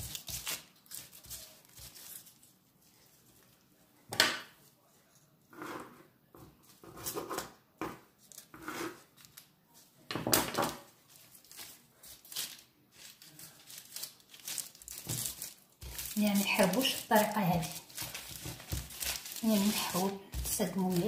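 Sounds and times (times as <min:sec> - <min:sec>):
knife cutting and scraping dough: 0:00.0 - 0:03.5, 0:04.4 - 0:09.4, 0:10.6 - 0:21.0
plastic sheet crinkling: 0:00.0 - 0:03.5, 0:10.8 - 0:21.0.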